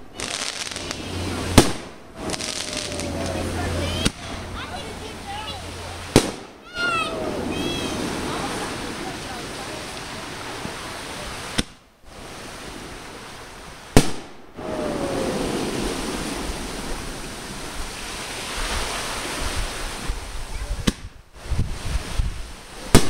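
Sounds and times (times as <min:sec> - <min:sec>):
firework bangs: 0:00.0 - 0:10.8, 0:11.4 - 0:13.0, 0:13.9 - 0:18.5
steady rushing hiss: 0:00.0 - 0:23.0.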